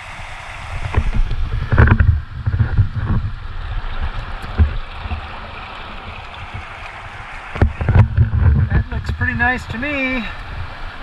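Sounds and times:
creek water running over rocks: 0.0s - 11.0s
thumps and sloshes in water: 0.7s - 9.2s.

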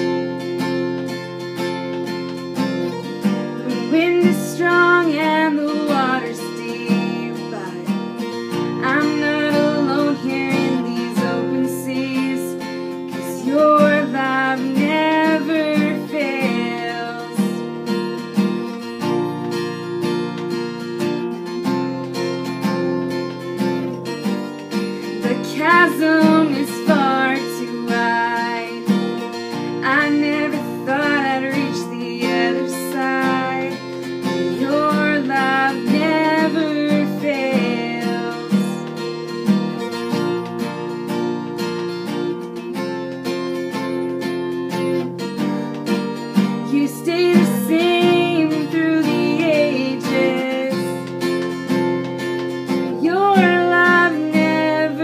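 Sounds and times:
acoustic guitar strumming: 0.0s - 55.0s
woman singing: 3.0s - 18.1s, 25.0s - 39.1s, 46.4s - 51.7s, 52.7s - 55.0s.

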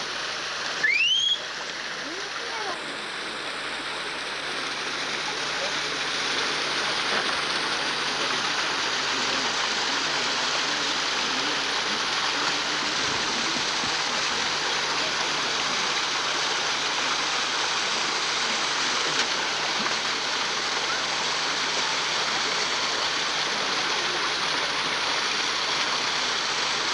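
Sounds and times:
faint voices: 0.0s - 26.9s
steady rushing hiss: 1.4s - 26.9s.

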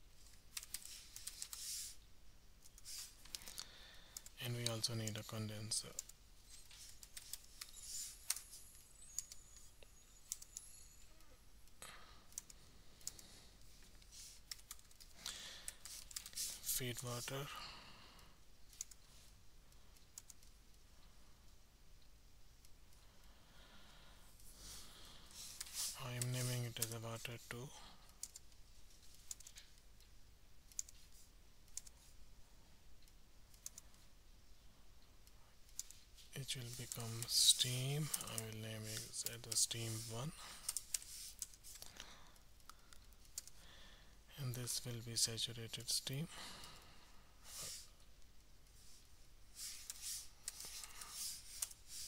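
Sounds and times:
computer mouse and keyboard clicks: 0.2s - 2.0s, 5.9s - 10.8s, 11.6s - 16.6s, 18.6s - 19.1s, 19.7s - 20.6s, 28.1s - 30.1s, 30.7s - 32.1s, 33.0s - 34.1s, 35.2s - 36.0s, 36.6s - 43.6s, 49.6s - 52.0s.

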